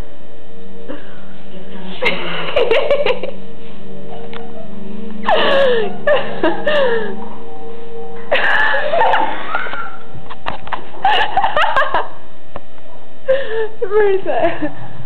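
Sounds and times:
girls giggling and squealing: 4.6 - 7.2, 8.3 - 12.2.

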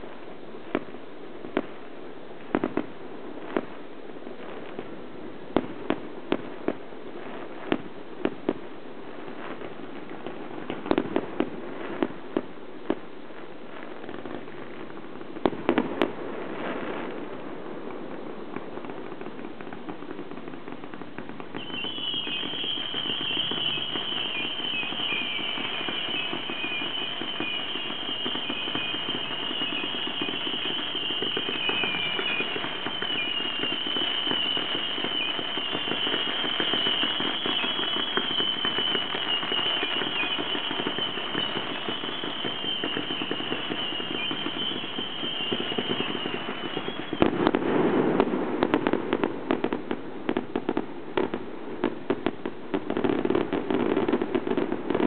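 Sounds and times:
fireworks crackling: 0.0 - 55.0
loud sharp firework cracks: 2.4 - 3.8, 13.8 - 55.0
high wavering whistle: 21.6 - 47.3.

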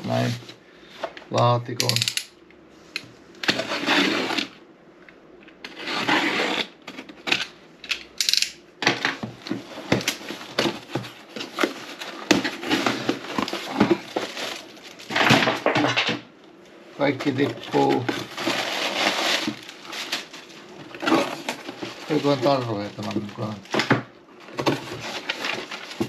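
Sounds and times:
cardboard box scraping and rustling: 5.7 - 7.2, 9.6 - 15.5, 17.2 - 23.6.

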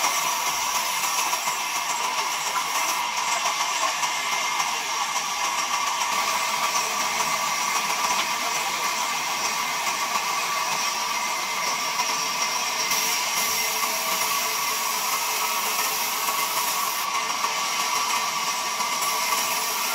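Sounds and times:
band saw cutting log: 0.0 - 19.9.

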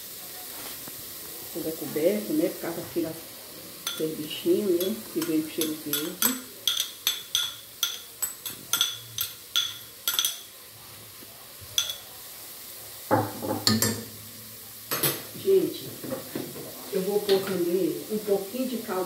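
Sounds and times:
bowl tapping saucepan rim: 4.8 - 10.5, 11.8 - 12.1.

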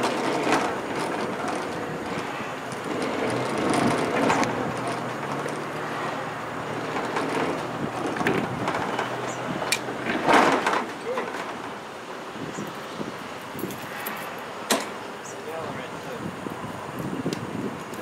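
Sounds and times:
wheels rumbling and grinding on rails: 0.0 - 18.0.

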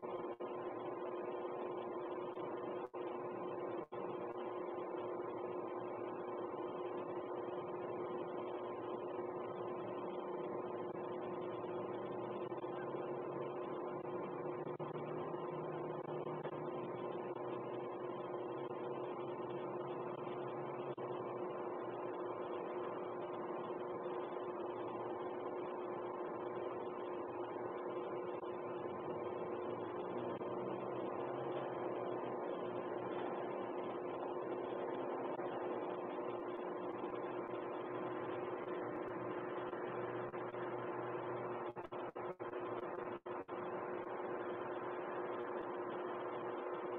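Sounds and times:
hum of held tones: 0.0 - 46.9.

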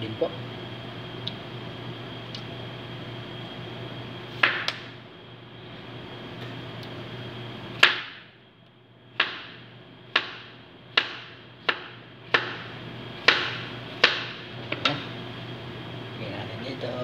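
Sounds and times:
knife chopping onto cutting board: 9.2 - 15.0.

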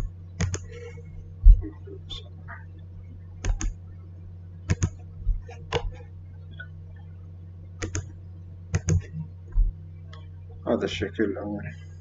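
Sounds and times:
low electrical hum: 0.0 - 12.0
computer mouse clicking: 0.4 - 0.7, 3.4 - 3.8, 4.7 - 5.0, 5.6 - 6.0, 7.8 - 8.1, 8.7 - 9.1.

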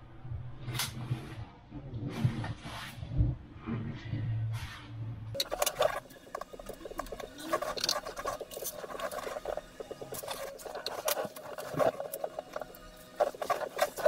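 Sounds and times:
light scratching and ticking: 5.4 - 14.0.

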